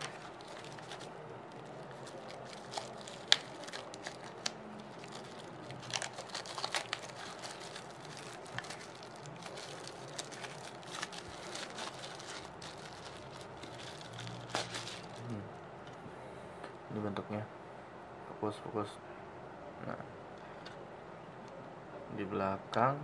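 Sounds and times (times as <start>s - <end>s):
plastic wrap crinkling: 0.0s - 15.4s.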